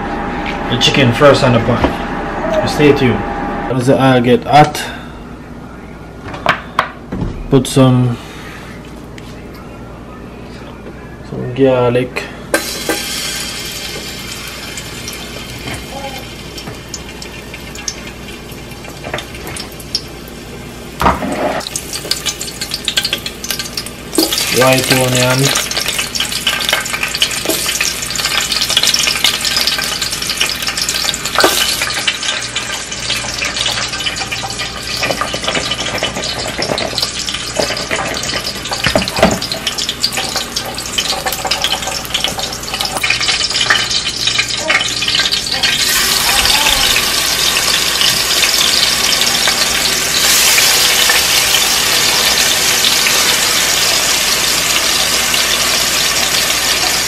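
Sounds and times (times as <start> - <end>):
food sizzling in hot oil: 12.5 - 57.0.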